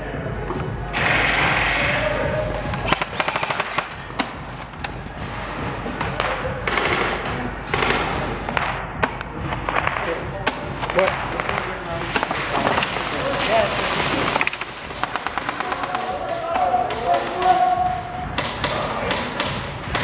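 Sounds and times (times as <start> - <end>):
loud rushing noise: 0.8 - 16.2
airsoft gun firing: 0.9 - 4.4, 6.1 - 17.6.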